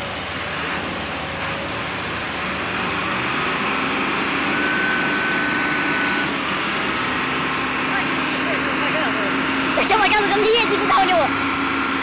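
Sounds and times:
diesel truck engines under load: 0:00.0 - 0:12.0.

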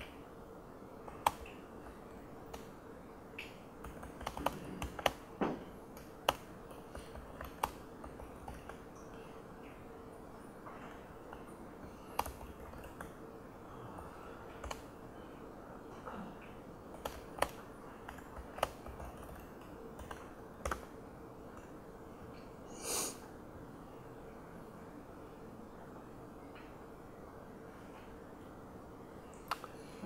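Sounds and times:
faint steady hum: 0:00.0 - 0:30.0
laptop keyboard keystrokes: 0:01.1 - 0:02.7, 0:03.4 - 0:05.3, 0:05.9 - 0:09.2, 0:11.3 - 0:13.2, 0:14.5 - 0:14.9, 0:16.9 - 0:20.9, 0:29.4 - 0:29.8.

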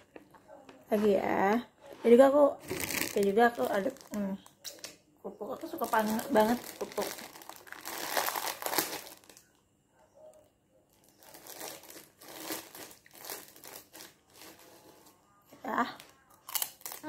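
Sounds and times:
plastic bag crinkling: 0:02.6 - 0:04.9, 0:05.5 - 0:09.6, 0:10.9 - 0:15.1, 0:15.9 - 0:17.0.

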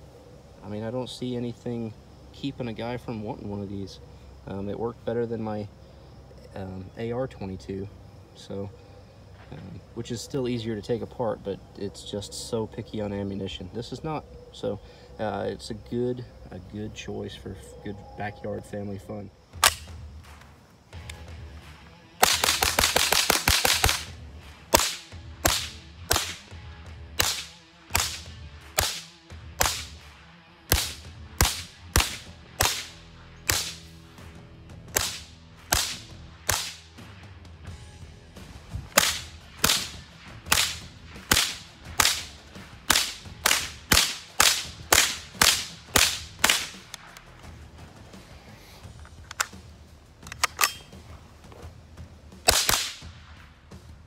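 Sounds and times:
rifle shots: 0:19.6 - 0:20.0, 0:22.2 - 0:33.9, 0:34.9 - 0:36.9, 0:38.9 - 0:47.3, 0:52.4 - 0:53.4.

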